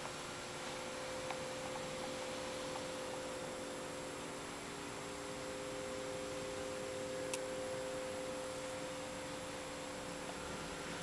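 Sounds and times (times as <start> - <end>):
electrical hum: 0.0 - 11.0
even hiss: 0.0 - 11.0.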